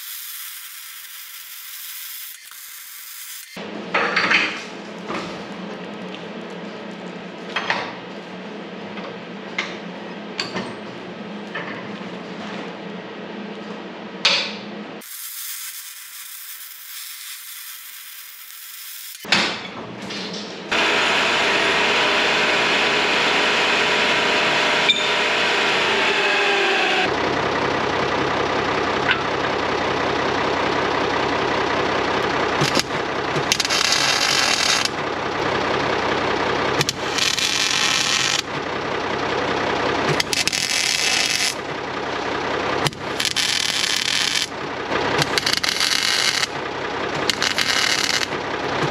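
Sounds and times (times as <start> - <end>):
power tool running on metal: 0.0 - 3.6, 15.0 - 19.3, 20.7 - 27.2, 30.5 - 48.9.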